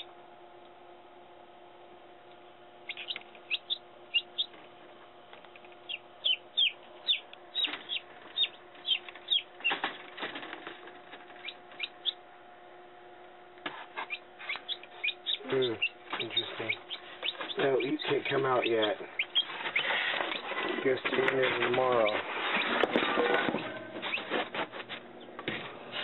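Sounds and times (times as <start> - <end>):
incubator fan hum: 0.0 - 26.0
chicks peeping: 2.8 - 4.8, 5.4 - 12.2, 13.7 - 25.4
knocks and rustling: 7.6 - 11.9, 16.1 - 26.0.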